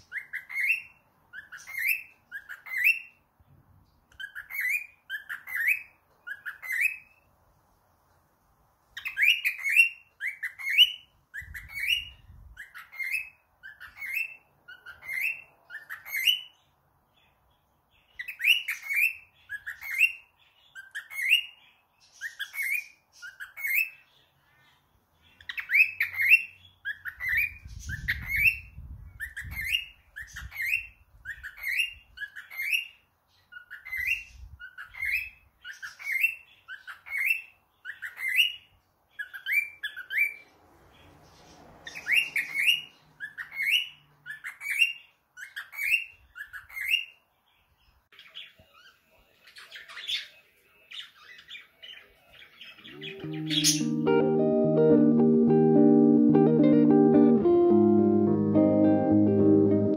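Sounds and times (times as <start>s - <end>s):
cockatiel chirping: 0.0s - 3.2s, 4.1s - 7.3s, 9.0s - 16.7s, 18.1s - 24.1s, 25.4s - 40.4s, 41.8s - 47.2s, 48.1s - 54.2s.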